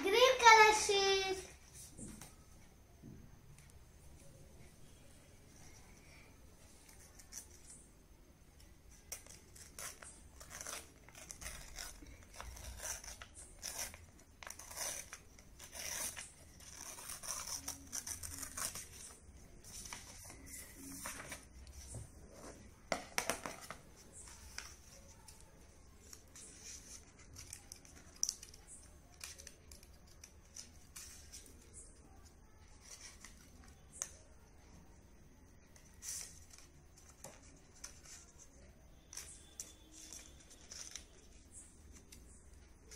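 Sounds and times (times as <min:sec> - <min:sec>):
paper rustling: 0:08.9 - 0:22.7
scissors cutting paper: 0:09.0 - 0:19.2, 0:26.0 - 0:34.2.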